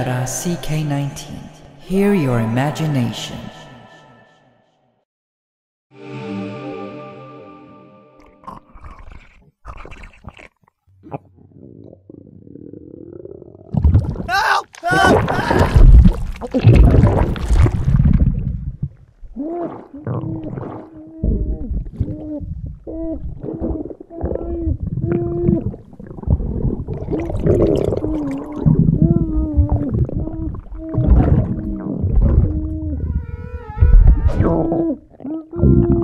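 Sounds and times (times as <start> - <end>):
cartoon stomach gurgling: 8.2 - 36.0.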